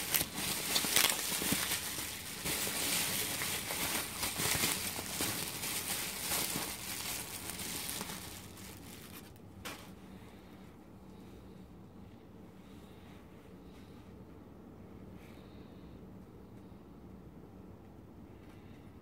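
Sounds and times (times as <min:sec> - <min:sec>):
bubble wrap crinkling: 0:00.0 - 0:09.4.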